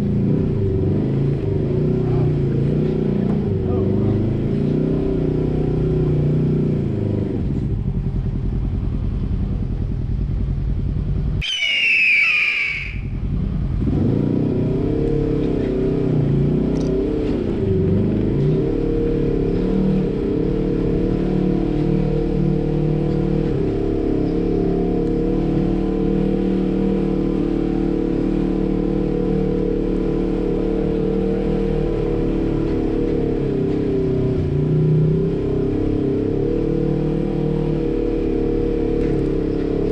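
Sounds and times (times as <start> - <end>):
off-road vehicle engine running: 0.0 - 39.9
high wavering squeal: 11.4 - 13.2.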